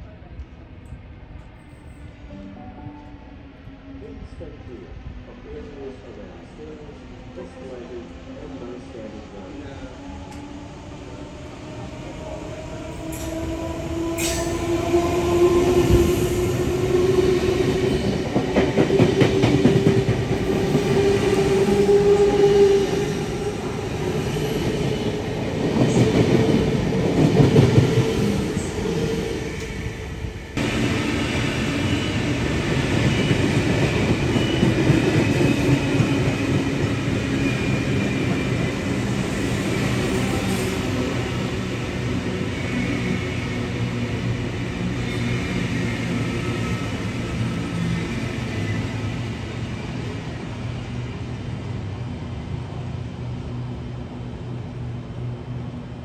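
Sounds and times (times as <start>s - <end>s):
train running on rails: 0.0s - 56.0s
rail squeal: 14.2s - 14.7s, 31.6s - 32.5s, 33.1s - 36.5s, 37.4s - 38.5s, 45.0s - 49.2s.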